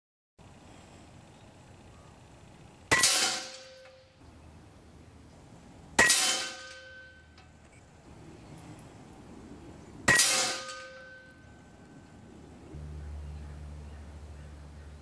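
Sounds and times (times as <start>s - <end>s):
bullets clanging on steel plate: 6.0s - 7.2s, 10.1s - 11.3s.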